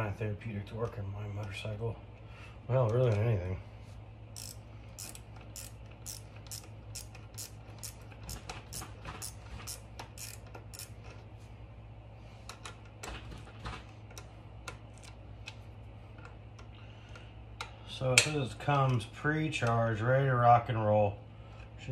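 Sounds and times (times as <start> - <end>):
ratcheting wrench clicking: 4.4 - 11.1.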